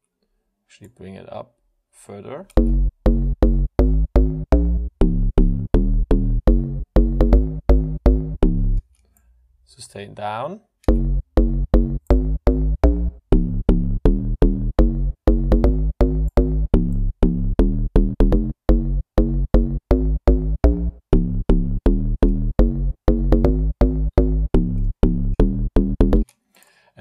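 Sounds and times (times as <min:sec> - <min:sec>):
plucky synth bassline: 0:02.6 - 0:08.8, 0:10.9 - 0:26.2.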